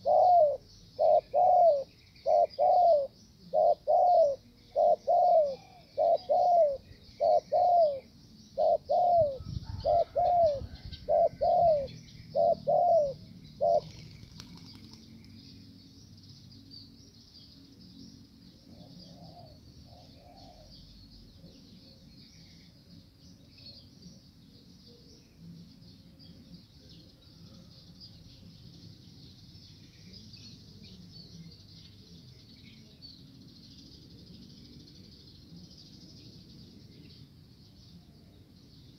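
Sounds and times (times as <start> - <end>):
dove cooing: 0.0 - 15.0, 18.7 - 20.8.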